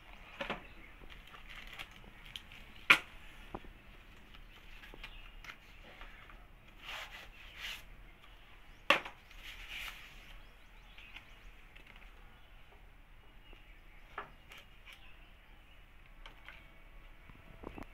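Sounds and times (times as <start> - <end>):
packaging rustling: 1.1 - 2.9.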